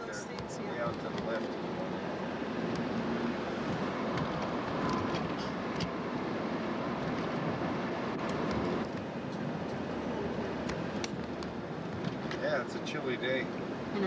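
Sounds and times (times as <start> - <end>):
car road noise inside cabin: 0.0 - 14.0.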